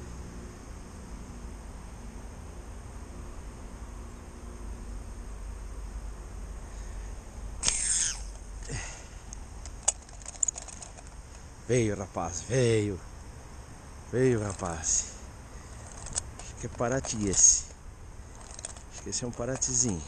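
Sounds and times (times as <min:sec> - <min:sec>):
insects chirring: 0:00.0 - 0:20.0
low outdoor rumble: 0:00.0 - 0:20.0
fishing line whirring off reel: 0:07.6 - 0:08.4
slingshot release: 0:07.6 - 0:08.4, 0:09.6 - 0:11.4, 0:15.8 - 0:17.8
sharp clicks: 0:07.6 - 0:08.5, 0:09.3 - 0:11.4, 0:15.7 - 0:20.0.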